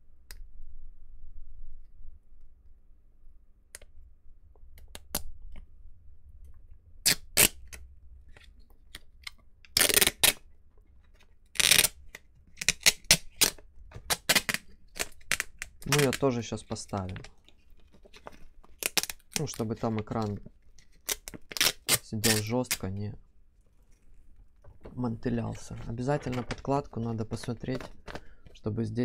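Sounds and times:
plastic film rustling and crinkling: 12.7 - 23.1, 23.7 - 28.7.

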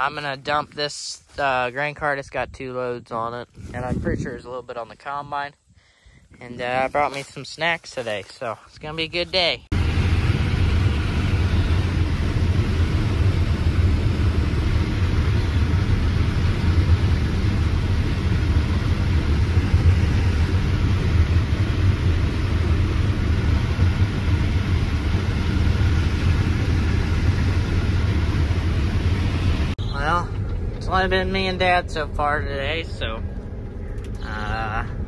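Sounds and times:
diesel engine hum: 5.9 - 35.0
mechanical rushing noise: 9.7 - 35.0.

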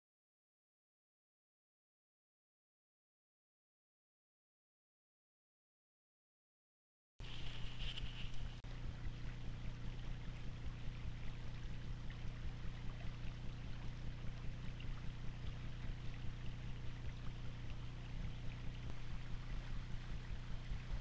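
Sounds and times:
faint crackles: 7.2 - 21.0
low electrical hum: 7.2 - 21.0.

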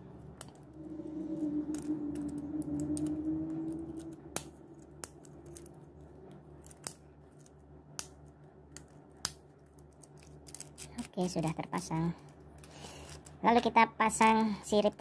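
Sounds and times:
low hum: 0.0 - 8.6.

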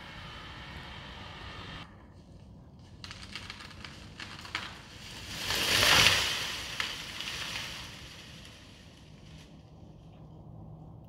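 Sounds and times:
tree trunk cracking and snapping: 2.8 - 8.7
tree crashing through branches: 2.8 - 9.4.

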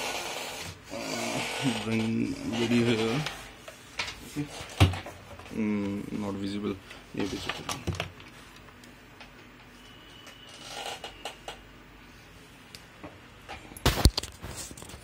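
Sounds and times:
faint rustling handling noise: 1.8 - 10.0.

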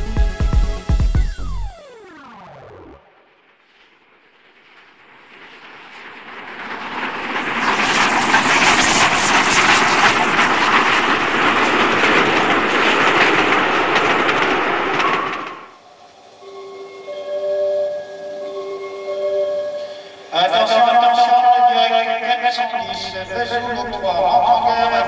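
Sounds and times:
model train wheels rattling on track: 6.6 - 15.8.

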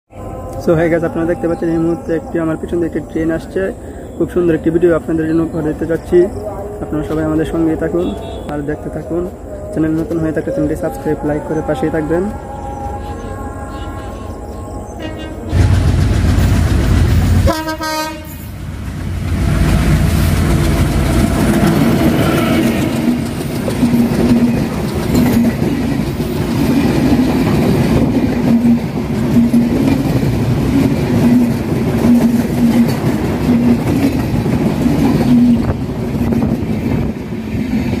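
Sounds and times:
train coaches rumbling: 0.1 - 38.0
wheels clattering over rail joints: 22.8 - 37.0.

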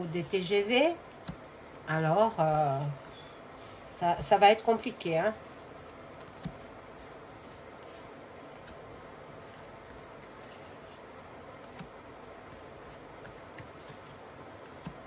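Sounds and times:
cards sliding on cloth: 5.5 - 15.0.

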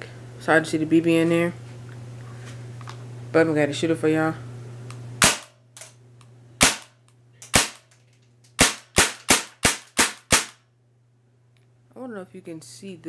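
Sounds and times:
airsoft gun shots: 5.2 - 5.6, 6.6 - 7.9, 8.6 - 10.6.

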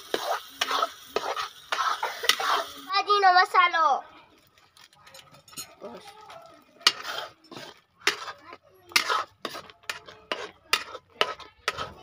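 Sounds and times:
metal spoon clanking on pan: 5.1 - 5.8, 6.8 - 12.0.

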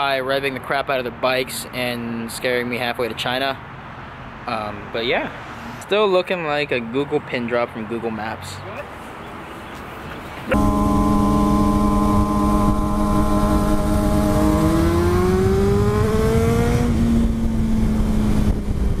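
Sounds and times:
motorcycle engines humming: 10.4 - 19.0
wind rush on microphone: 15.4 - 19.0.

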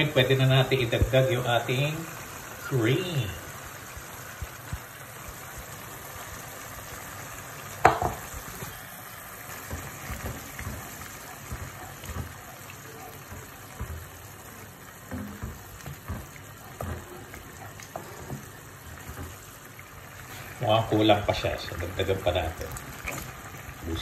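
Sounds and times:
sauce simmering with a hiss: 0.0 - 24.0
wooden spoon stirring and scraping: 8.1 - 24.0.

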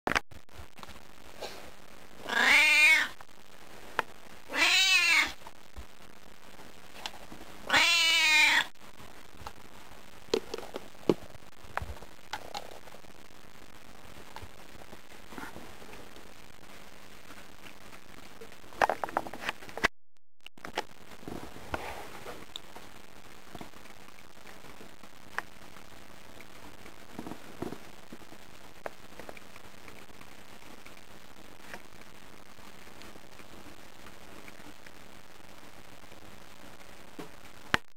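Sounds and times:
steady hiss: 0.5 - 19.8
cat meowing: 2.2 - 3.2, 4.5 - 5.4, 7.6 - 8.7.

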